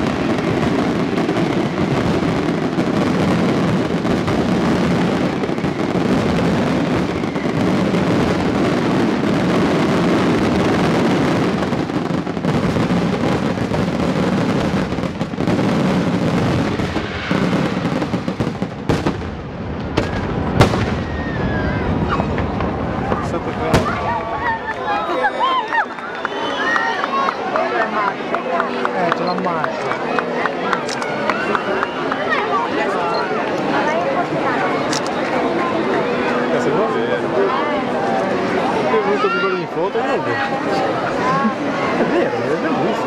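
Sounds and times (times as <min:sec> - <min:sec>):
fireworks bangs and crackle: 0:00.0 - 0:43.0.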